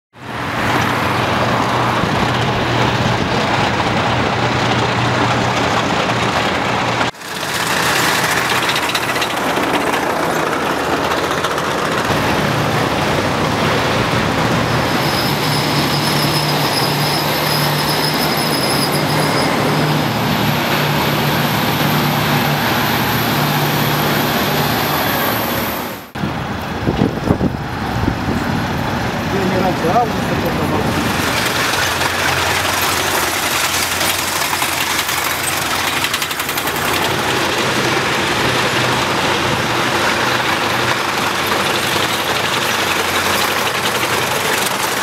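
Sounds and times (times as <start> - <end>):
tanks and military vehicles driving: 0.2 - 45.0.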